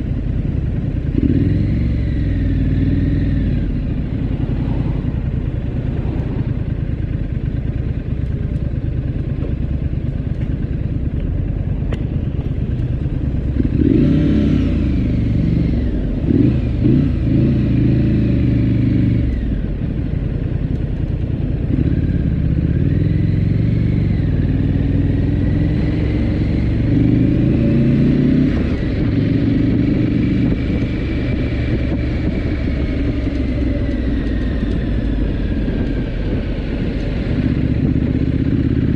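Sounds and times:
motorcycle engine accelerating: 0.0s - 38.9s.

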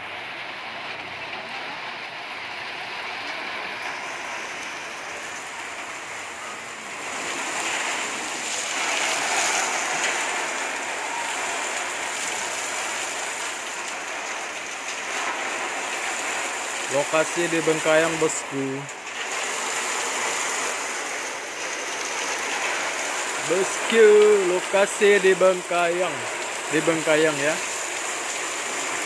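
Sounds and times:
fire hoses spraying water: 0.0s - 29.0s.

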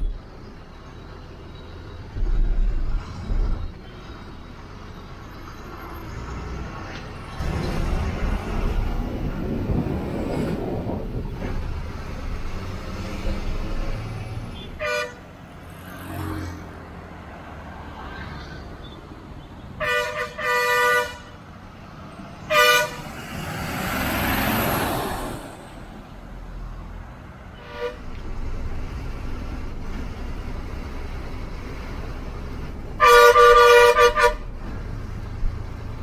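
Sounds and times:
truck engine rumbling: 0.0s - 17.8s, 18.6s - 36.0s
road traffic: 0.0s - 36.0s
vehicle horn tooting: 14.6s - 15.2s, 19.8s - 21.4s, 22.5s - 23.1s, 33.0s - 34.4s
vehicle rushing past: 15.7s - 18.8s, 22.2s - 26.0s.

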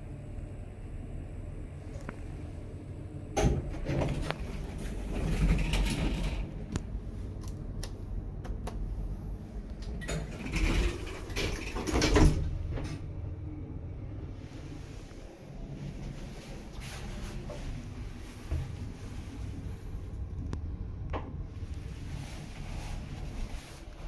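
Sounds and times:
low steady hum: 0.0s - 24.0s
lift doors clicking and clunking: 3.4s - 6.8s, 9.8s - 13.1s.

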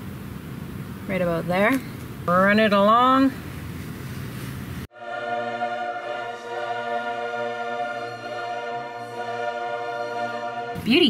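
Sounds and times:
long held music chord: 4.9s - 11.0s.

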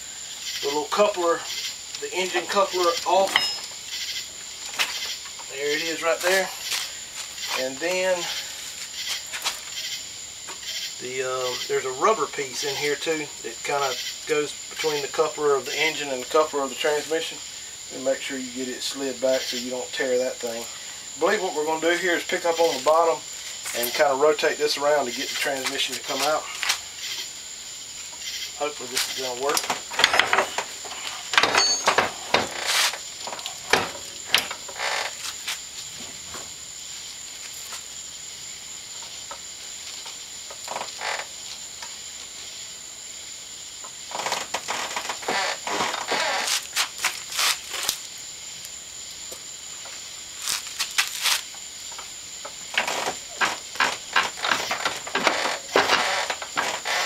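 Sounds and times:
metal clunks scrapes and rattles: 29.0s - 34.8s.

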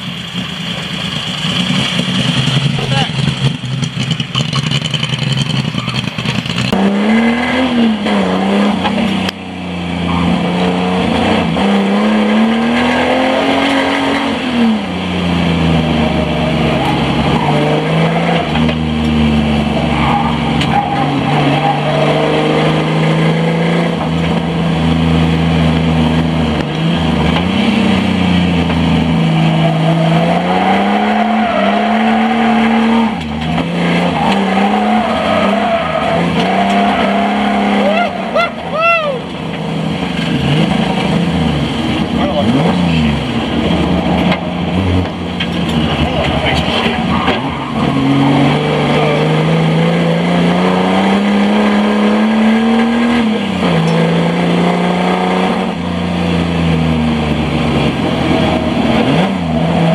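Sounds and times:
race car engine revving: 0.6s - 59.9s.

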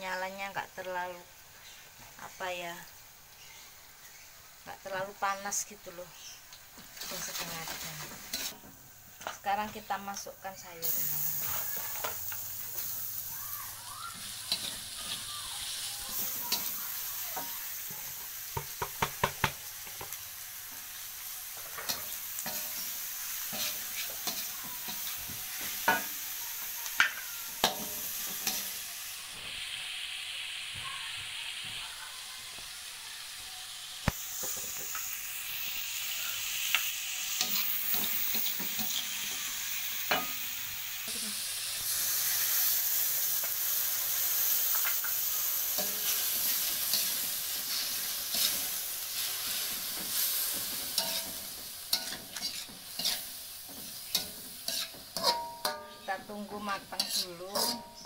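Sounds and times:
vegetables sizzling in hot oil: 0.0s - 58.0s
metal spatula scraping wok: 6.8s - 13.2s, 14.2s - 18.4s, 20.8s - 26.3s, 27.0s - 28.8s, 36.6s - 40.6s, 41.3s - 58.0s
spatula clacking against pan: 18.6s - 20.2s, 51.9s - 56.0s.

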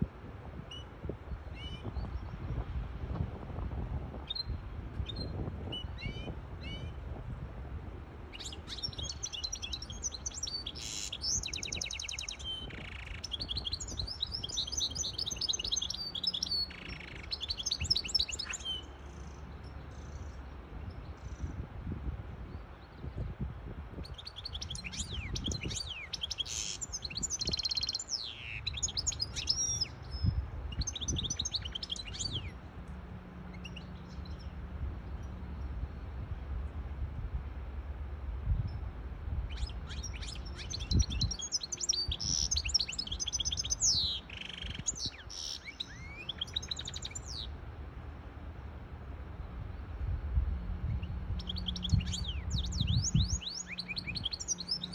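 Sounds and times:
finch twittering song: 0.6s - 2.6s, 4.2s - 7.0s, 8.3s - 21.6s, 24.0s - 32.6s, 33.4s - 36.2s, 38.6s - 47.6s, 50.8s - 54.9s.

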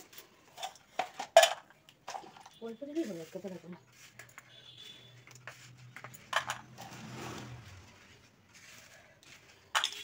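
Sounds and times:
hands mixing crumbs in bowl: 2.6s - 6.1s, 7.9s - 10.0s.

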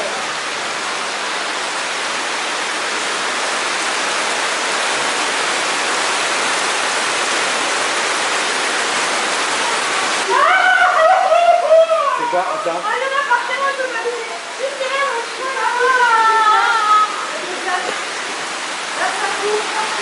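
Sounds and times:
heavy rain hissing: 0.0s - 20.0s.

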